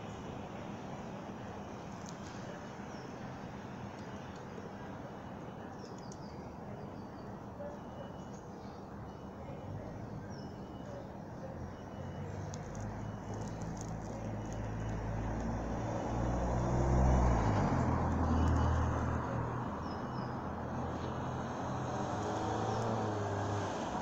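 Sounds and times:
low engine hum: 11.5s - 24.0s.

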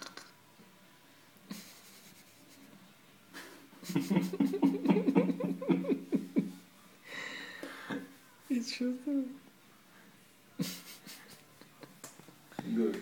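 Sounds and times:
person laughing in quick pulses: 1.5s - 2.7s.

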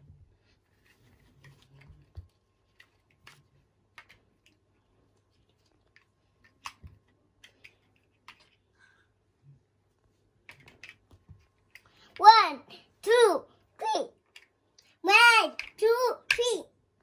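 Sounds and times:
plastic toy blocks clicking: 2.8s - 4.6s, 10.5s - 11.9s, 14.2s - 14.6s.

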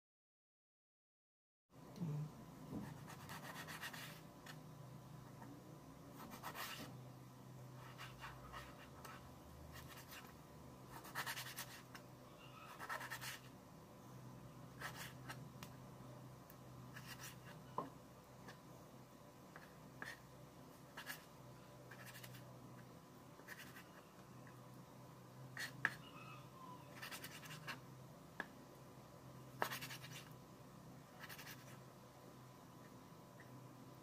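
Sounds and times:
low steady hum: 1.7s - 34.0s.

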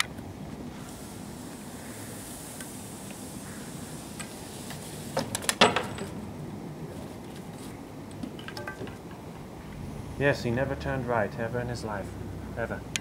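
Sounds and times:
faint outdoor background noise: 0.0s - 13.0s
skis and poles clattering: 8.2s - 9.3s.

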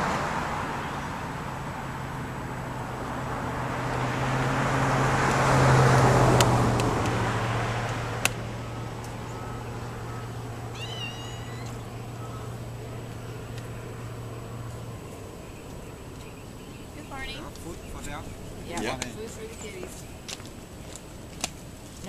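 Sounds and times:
vehicle passing: 0.0s - 22.0s
cat meowing: 10.7s - 11.8s.

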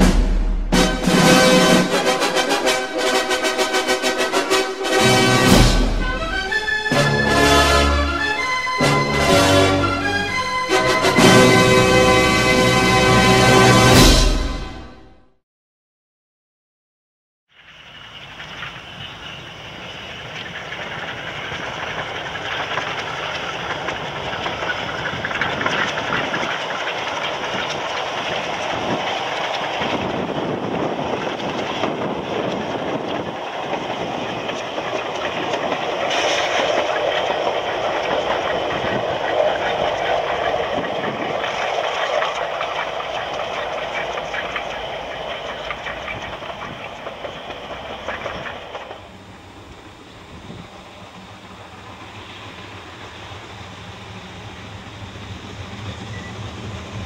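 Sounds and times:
train wheels on rails: 0.0s - 15.0s, 17.6s - 57.0s
steam locomotive passing: 0.0s - 15.2s, 17.6s - 57.0s.

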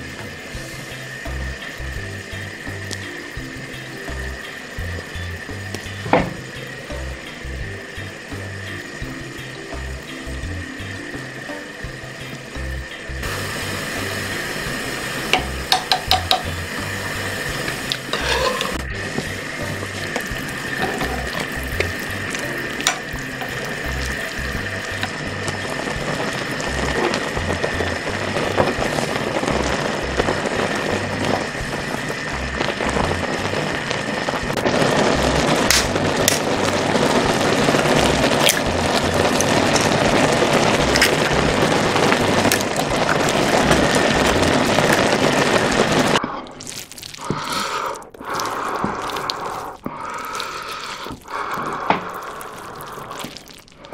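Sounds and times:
broth boiling and bubbling: 0.0s - 53.9s.

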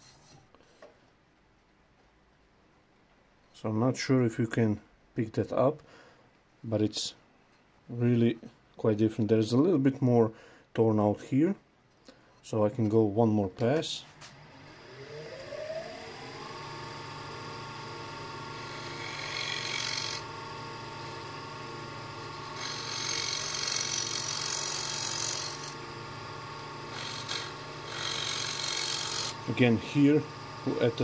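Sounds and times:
wood lathe motor whine: 14.3s - 31.0s
scraper scraping wood: 22.3s - 25.8s, 26.7s - 29.8s.

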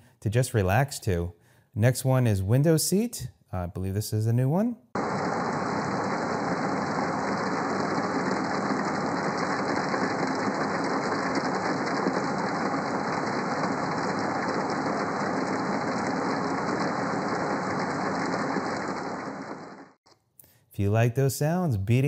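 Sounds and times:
low hum: 5.0s - 20.0s
rain falling on a window: 5.0s - 20.0s.

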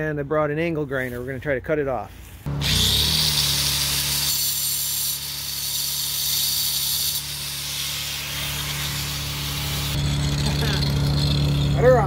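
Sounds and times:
angle grinder cutting metal: 2.5s - 12.0s.

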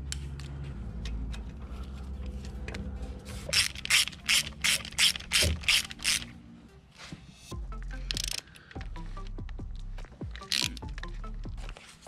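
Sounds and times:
socket ratchet clicking: 3.5s - 6.3s, 8.1s - 8.8s, 10.4s - 11.0s.

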